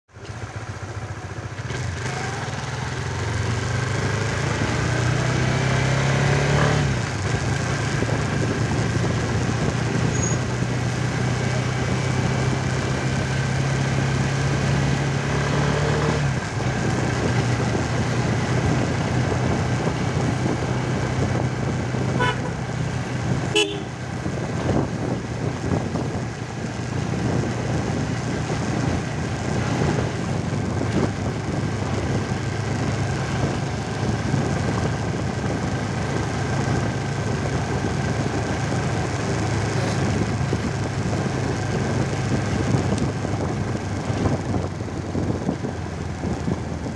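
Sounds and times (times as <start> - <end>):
motorcycle engine running: 0.1 - 46.9
short horn toots: 22.1 - 22.6, 23.5 - 24.0.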